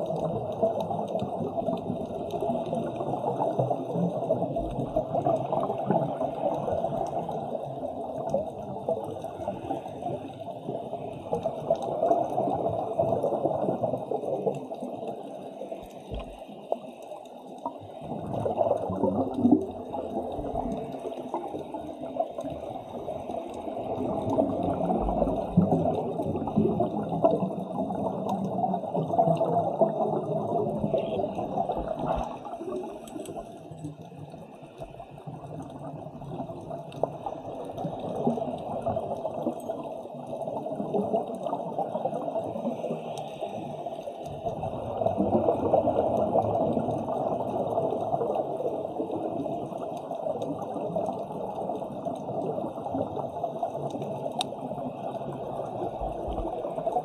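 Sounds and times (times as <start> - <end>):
underwater air bubbling: 0.0 - 57.0.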